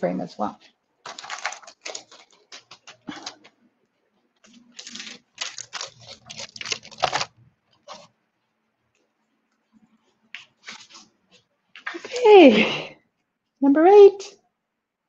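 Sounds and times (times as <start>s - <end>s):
packaging rustling and clattering: 1.0s - 3.6s, 4.4s - 8.1s.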